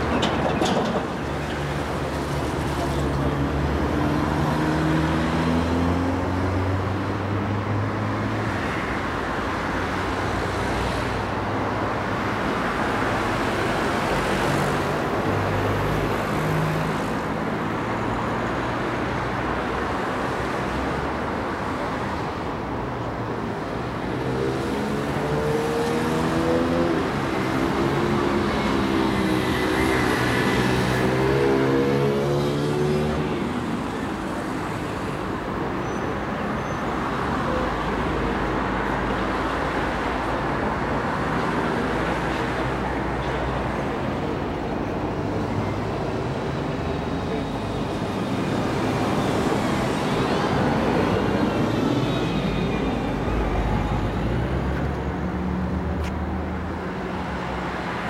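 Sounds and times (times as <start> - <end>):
cars passing by: 0.0 - 58.0.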